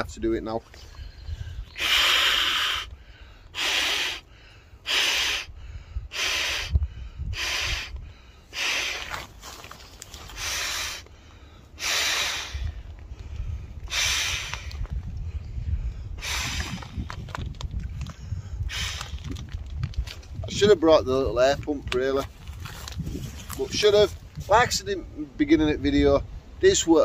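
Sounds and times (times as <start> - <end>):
man blowing into air mat valve: 1.8 - 2.9, 3.5 - 9.1, 11.8 - 12.8, 13.8 - 14.8, 16.2 - 17.2, 18.6 - 19.5.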